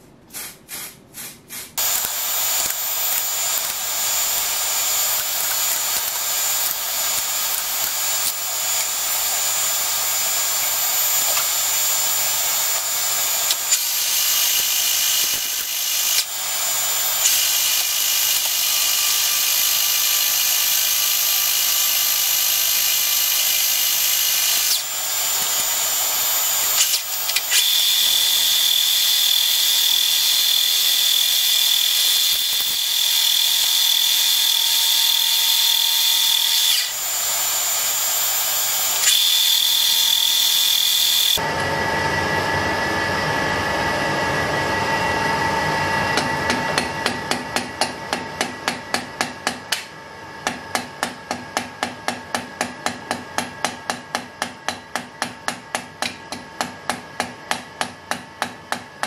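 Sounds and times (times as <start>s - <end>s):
lathe high-pitched whine: 1.8s - 46.5s
lathe running noise: 1.8s - 46.9s.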